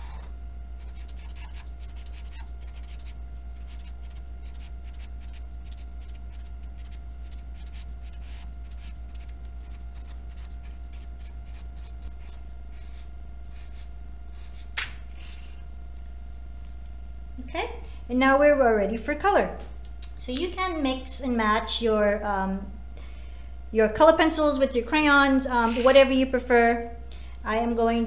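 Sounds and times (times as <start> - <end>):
marker scratching on paper: 0.0 - 15.7.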